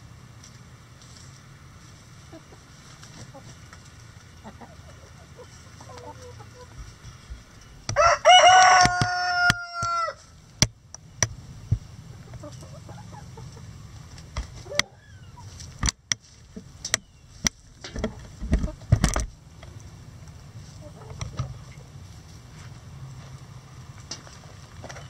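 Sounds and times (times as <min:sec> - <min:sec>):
hens clucking: 0:01.8 - 0:10.2, 0:11.6 - 0:19.0, 0:19.6 - 0:22.5
rooster crowing: 0:07.9 - 0:10.4.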